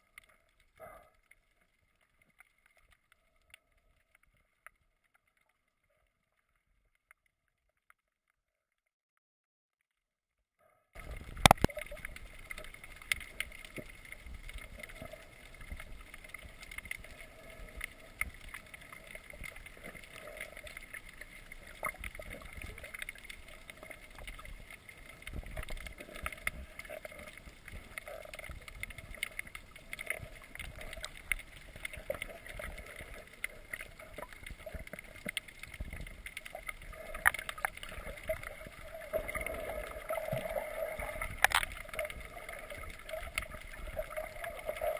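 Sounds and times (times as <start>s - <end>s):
clicks and crackles: 0.0s - 8.9s, 11.0s - 44.9s
muffled underwater hiss: 11.0s - 44.9s.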